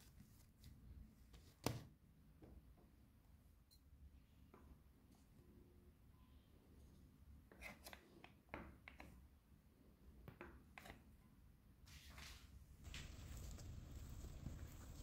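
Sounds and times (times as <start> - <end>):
scraping rustle of dough: 11.9 - 15.0.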